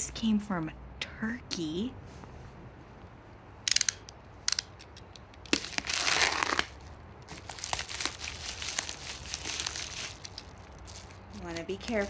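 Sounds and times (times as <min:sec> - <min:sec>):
plastic bag crinkling: 0:05.5 - 0:12.0.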